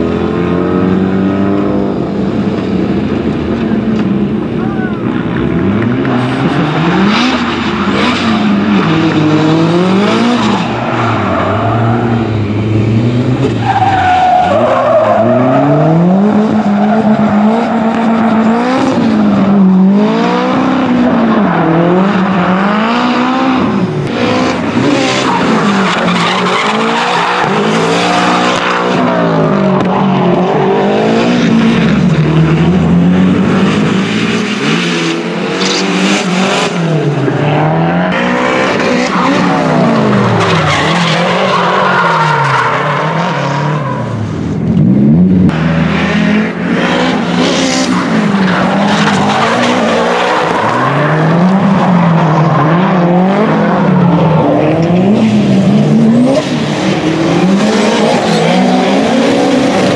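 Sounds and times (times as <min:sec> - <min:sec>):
car engine revving hard: 0:05.3 - 0:44.0, 0:44.7 - 0:59.9
tyre squeal and skidding: 0:13.4 - 0:19.6, 0:24.9 - 0:28.4, 0:38.8 - 0:44.2.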